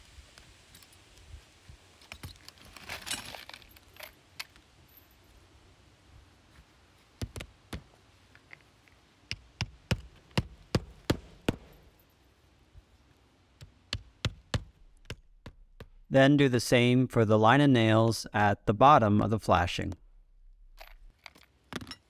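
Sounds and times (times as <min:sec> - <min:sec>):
hammer striking a nail: 0:09.3 - 0:11.8, 0:13.6 - 0:16.0.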